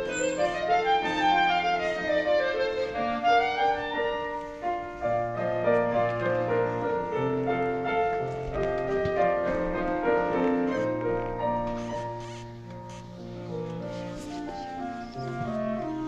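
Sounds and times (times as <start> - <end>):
clarinet: 0.0 - 16.0
piano: 0.0 - 16.0.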